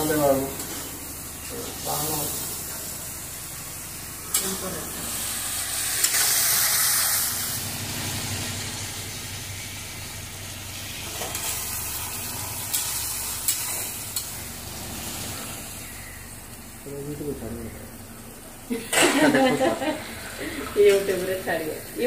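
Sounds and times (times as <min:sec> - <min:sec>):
masala sizzling in hot oil: 0:00.0 - 0:22.0.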